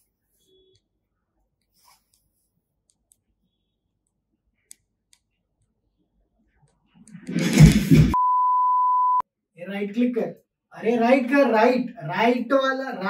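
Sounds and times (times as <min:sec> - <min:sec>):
person falling with a crash: 0:07.3 - 0:08.2
high censor bleep: 0:08.2 - 0:09.2.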